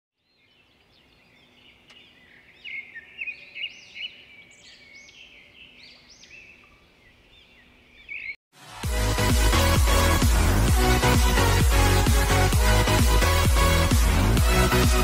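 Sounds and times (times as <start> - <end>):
birds chirping: 0.2 - 8.4.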